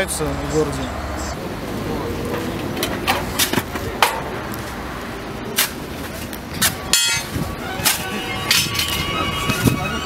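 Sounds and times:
ringing metallic scrape: 6.9s - 10.0s.

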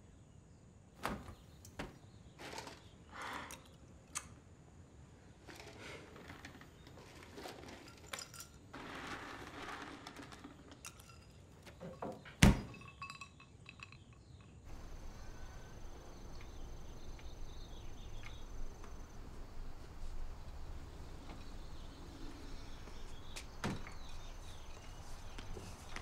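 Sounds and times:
low outdoor hum: 1.5s - 26.0s
glass clinking in refrigerator: 10.9s - 15.9s
sharp thud with glass rattle: 12.4s - 13.0s.

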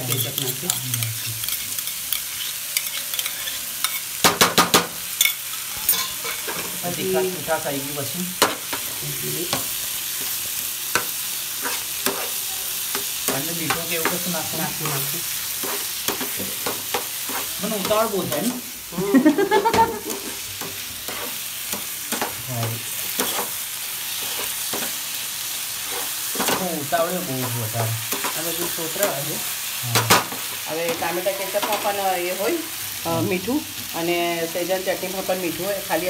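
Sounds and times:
spatula scraping a pan: 0.0s - 4.2s, 5.2s - 7.0s, 8.4s - 18.6s, 19.8s - 29.2s
vegetables sizzling in a pan: 0.0s - 36.0s.

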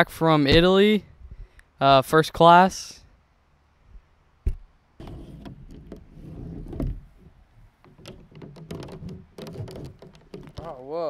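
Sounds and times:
microphone thump on plastic table: 4.4s - 6.1s, 7.8s - 10.7s
plastic water bottle rustling and clicking: 5.0s - 10.8s.

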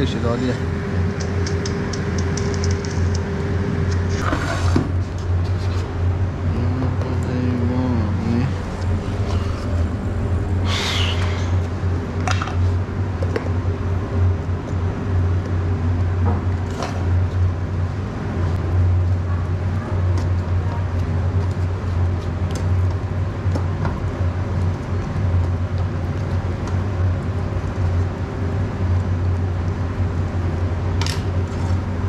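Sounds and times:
kitchen machinery hum: 0.0s - 21.4s.

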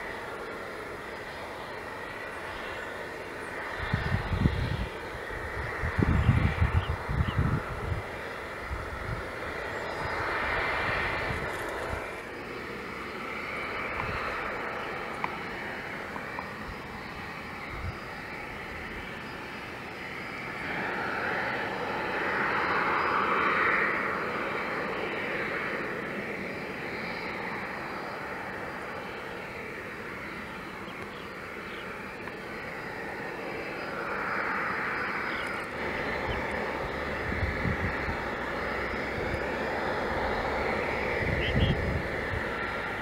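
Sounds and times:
jet engine whine: 0.0s - 43.0s.

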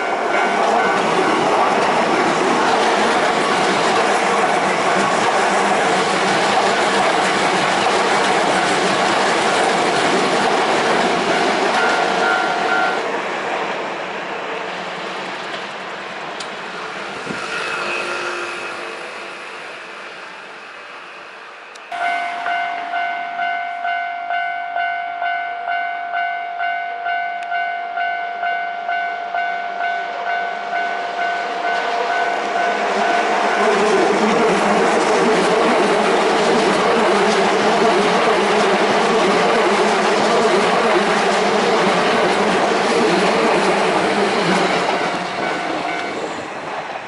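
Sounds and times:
level crossing warning bell: 0.0s - 1.4s, 11.2s - 13.0s, 21.9s - 33.9s, 44.6s - 46.3s
electric train rolling on rails: 0.0s - 47.0s.

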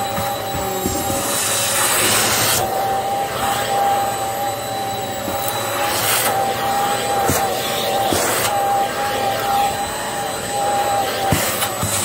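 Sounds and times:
vacuum cleaner motor whine: 0.0s - 12.0s.

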